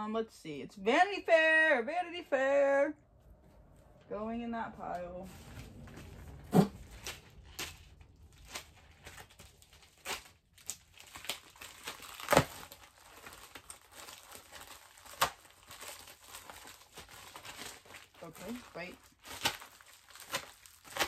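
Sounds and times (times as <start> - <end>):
plastic bags crinkling: 5.2 - 21.0
sharp plastic crackles: 5.2 - 21.0
knife cutting plastic: 6.5 - 15.9, 19.2 - 21.0.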